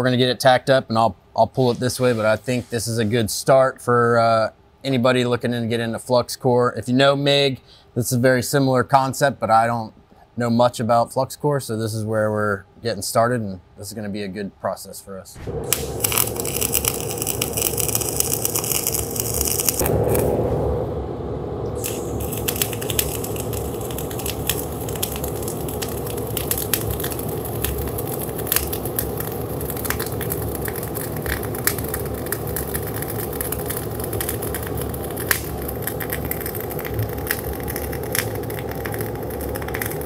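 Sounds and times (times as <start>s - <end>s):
crackling welding arc with pops: 1.6s - 3.2s, 15.4s - 20.5s, 21.6s - 40.0s.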